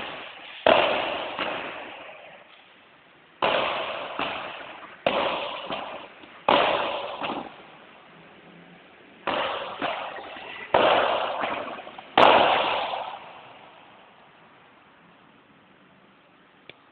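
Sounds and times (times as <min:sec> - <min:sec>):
ball bouncing off court: 0:00.0 - 0:01.8, 0:03.4 - 0:07.6, 0:09.3 - 0:13.2
paddle hitting ball: 0:03.4 - 0:07.5.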